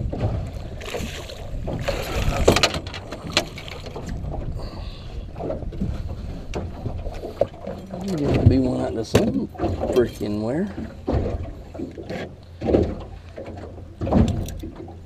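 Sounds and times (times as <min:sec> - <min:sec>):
wind rumbling on microphone: 0:00.0 - 0:12.0
water lapping against boat: 0:00.0 - 0:15.0.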